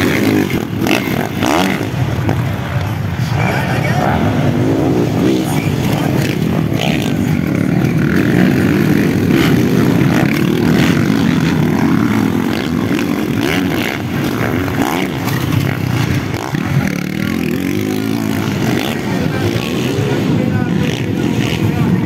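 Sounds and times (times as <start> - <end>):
motocross bikes revving: 0.0 - 22.0.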